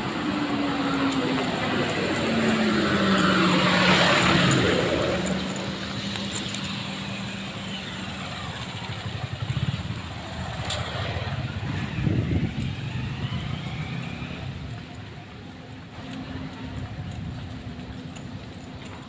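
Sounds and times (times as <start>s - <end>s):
low traffic rumbling: 0.0s - 19.0s
vehicle engine hum: 0.0s - 19.0s.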